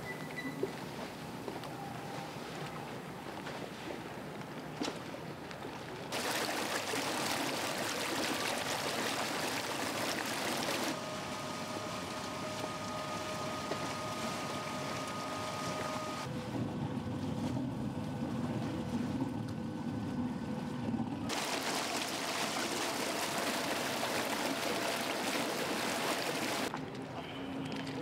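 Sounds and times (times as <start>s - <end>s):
water rushing along hull: 0.6s - 26.8s
faint motor whine: 10.9s - 21.4s.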